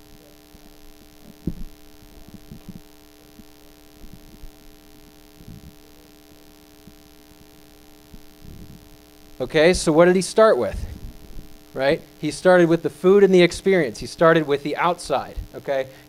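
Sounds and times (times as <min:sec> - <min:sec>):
steady electrical hum: 0:00.0 - 0:16.0
soft low thumps: 0:00.6 - 0:05.9, 0:06.8 - 0:09.8, 0:10.7 - 0:11.8.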